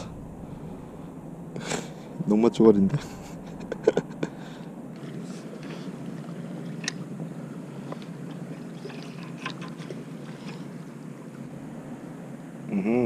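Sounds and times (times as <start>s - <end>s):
steady low rumble: 0.0s - 8.8s, 11.0s - 13.0s.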